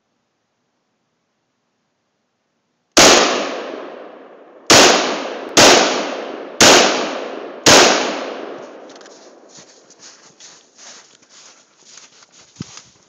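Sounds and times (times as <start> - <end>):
rifle shots echoing: 3.0 - 8.9.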